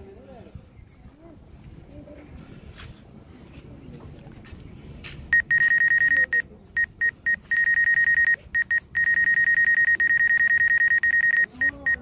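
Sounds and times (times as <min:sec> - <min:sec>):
electronic buzzer pulsing beep: 0:05.4 - 0:12.0.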